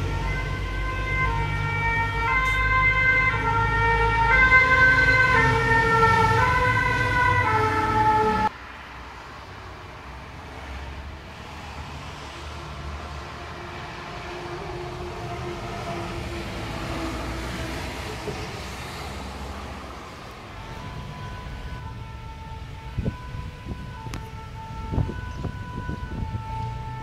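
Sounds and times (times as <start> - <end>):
two-tone sirens: 0.0 - 8.5, 12.1 - 27.0
low traffic rumble: 0.0 - 27.0
heavy engine rumble: 12.6 - 27.0.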